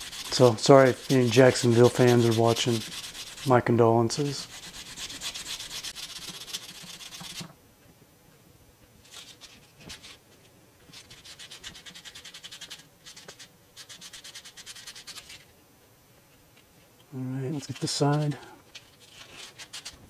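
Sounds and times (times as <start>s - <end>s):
sandpaper scratching metal: 0.0s - 7.5s, 10.9s - 15.5s, 17.5s - 20.0s.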